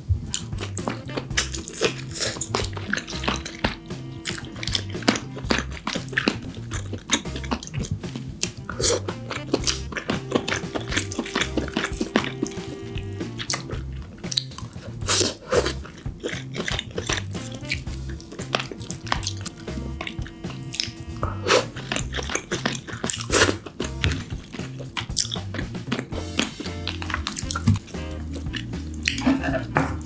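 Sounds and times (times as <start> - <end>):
background music with low beat: 0.0 - 30.0
crunching and chewing: 0.3 - 30.0
crab shell cracking: 15.6 - 17.7, 21.8 - 27.8.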